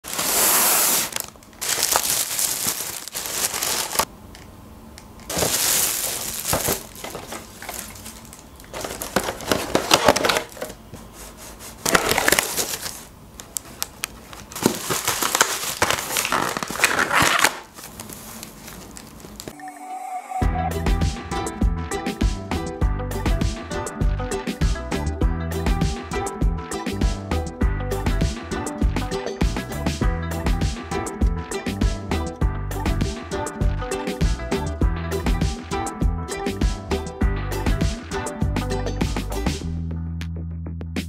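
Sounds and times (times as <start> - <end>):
foil trays crackling: 0.0 - 4.1, 5.3 - 19.5
plastic bag rustling: 0.0 - 4.1, 5.3 - 19.5.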